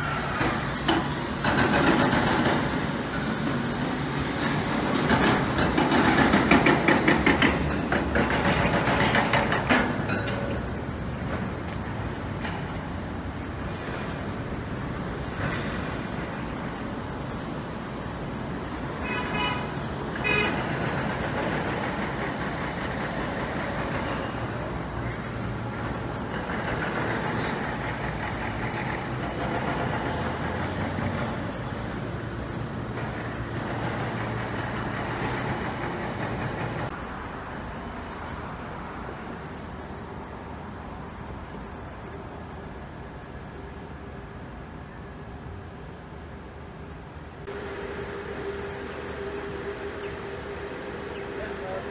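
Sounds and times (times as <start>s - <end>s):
rumble of heavy machinery: 0.0s - 51.9s
street traffic: 0.0s - 51.9s
vehicle horn tooting: 19.0s - 20.6s
low engine drone: 47.4s - 51.9s.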